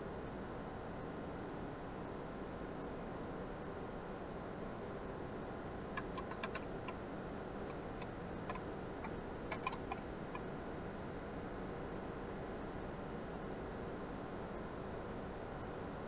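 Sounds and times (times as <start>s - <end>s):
paintbrush clicks and taps: 6.0s - 6.6s, 9.5s - 10.0s.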